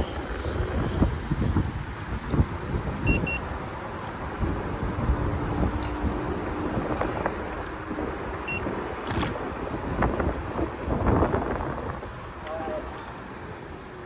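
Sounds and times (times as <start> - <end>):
road rumble: 0.0 - 14.0
wind buffeting microphone: 0.0 - 14.0
high beep: 3.0 - 3.4, 8.4 - 8.6.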